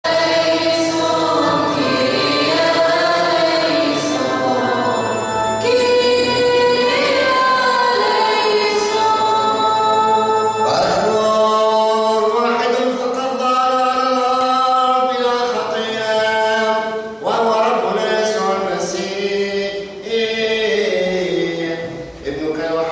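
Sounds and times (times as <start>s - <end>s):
voices singing slow chant: 0.1s - 12.0s.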